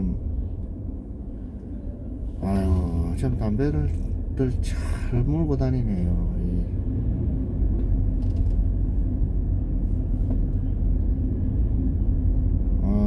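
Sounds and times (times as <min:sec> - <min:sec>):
car engine and road rumble: 0:00.0 - 0:13.0
faint clicks or creaks: 0:08.1 - 0:08.7.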